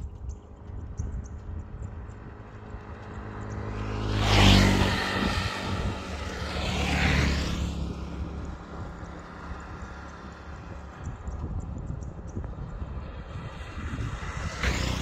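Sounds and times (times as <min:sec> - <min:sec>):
vehicles passing by: 0:00.0 - 0:15.0.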